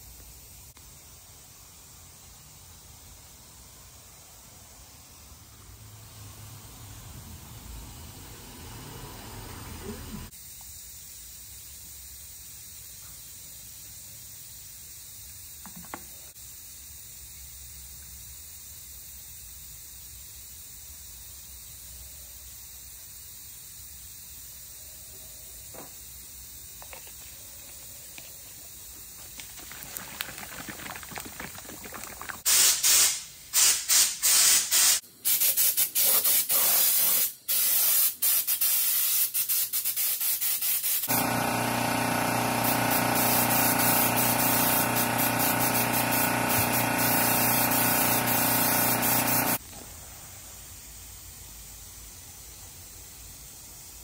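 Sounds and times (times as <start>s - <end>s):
spray gun hissing: 32.4s - 49.6s.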